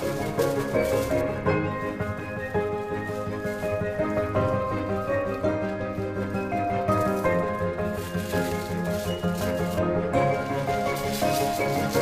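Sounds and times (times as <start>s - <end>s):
light tune over steady beat: 0.0s - 12.0s.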